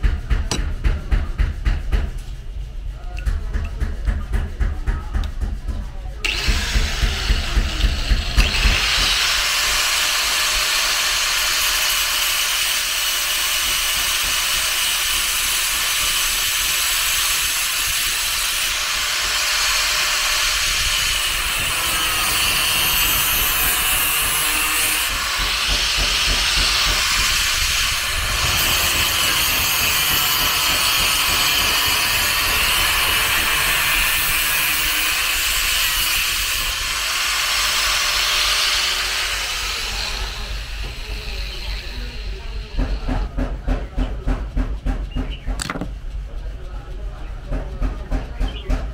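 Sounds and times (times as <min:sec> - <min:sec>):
power tool grinding metal: 0:06.2 - 0:43.1.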